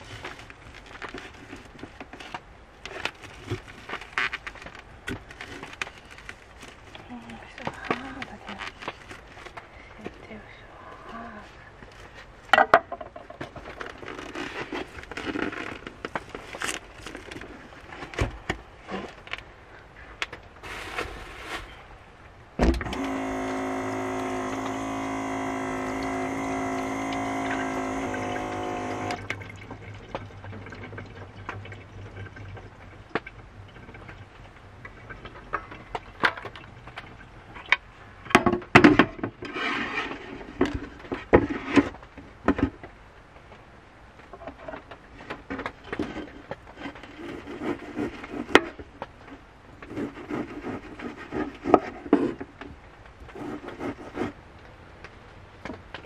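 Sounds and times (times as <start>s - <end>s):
water pump motor hum: 22.6s - 35.2s.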